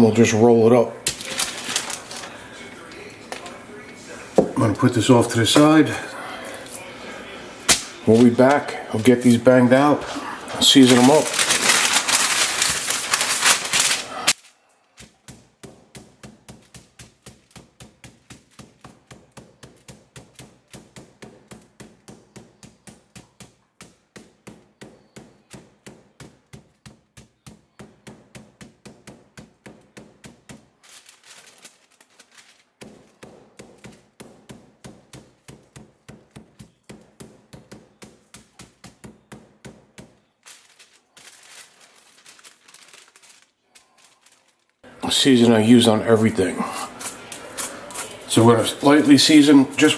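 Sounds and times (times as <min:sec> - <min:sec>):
paper being handled: 0:01.0 - 0:05.9, 0:07.6 - 0:49.9
meat mallet pounding on board: 0:15.0 - 0:30.8, 0:32.7 - 0:40.4.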